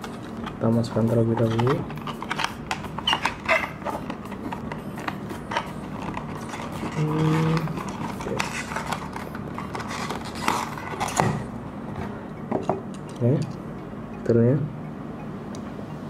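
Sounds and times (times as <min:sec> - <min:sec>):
steady low hum: 0:00.0 - 0:16.0
plastic packaging crinkling: 0:01.3 - 0:11.5.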